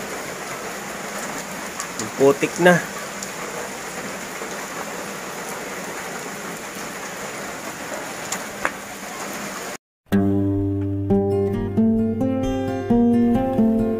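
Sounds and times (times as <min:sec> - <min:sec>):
rain falling on puddles: 0:00.0 - 0:09.8
strummed guitar music: 0:10.1 - 0:13.9.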